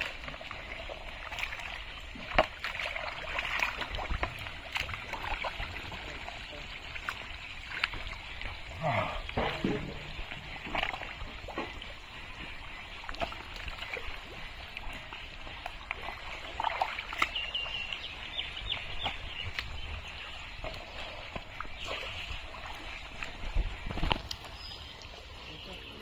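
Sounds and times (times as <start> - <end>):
wading through mud splashing: 0.0 - 26.0
bird chirping: 17.1 - 23.1.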